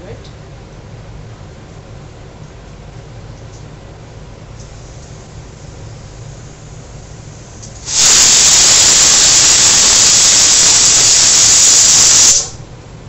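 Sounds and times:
loud steady hiss: 4.6 - 12.7.

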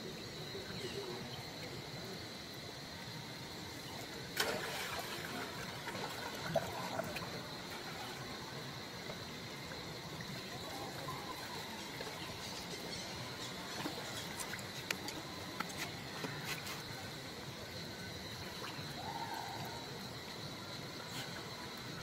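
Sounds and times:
water splashing and lapping: 4.3 - 19.4.

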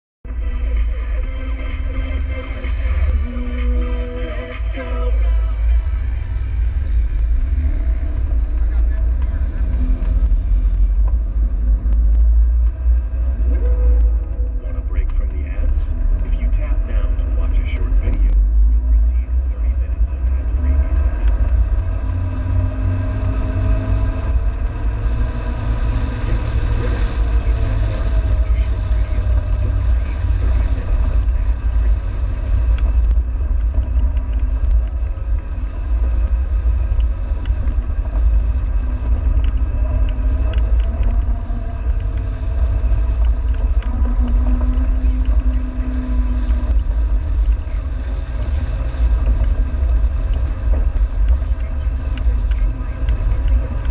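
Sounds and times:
engine note rising and falling: 0.2 - 53.9
vehicle rumble on dirt track: 0.2 - 53.9.

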